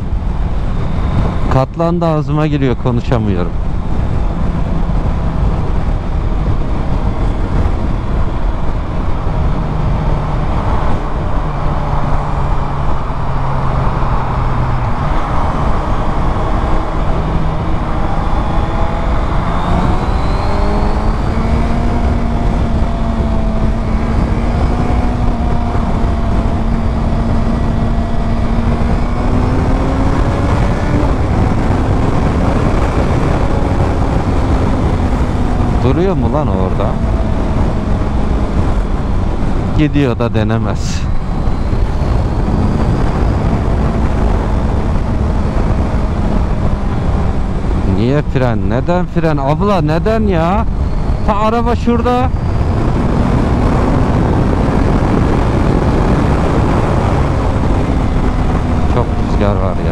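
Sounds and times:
wind rush over microphone: 0.0 - 59.9
motorcycle engine running: 3.6 - 39.7.

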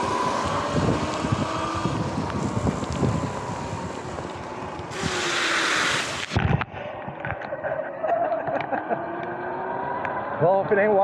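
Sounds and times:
tyres hissing through water: 4.9 - 6.4.

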